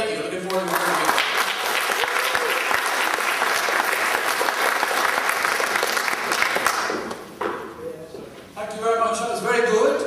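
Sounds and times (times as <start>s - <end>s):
audience applauding: 0.5s - 7.3s.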